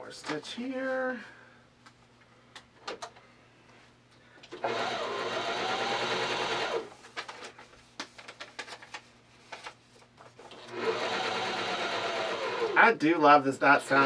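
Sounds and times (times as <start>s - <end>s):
sewing machine stitching: 4.5s - 6.9s, 10.5s - 12.8s.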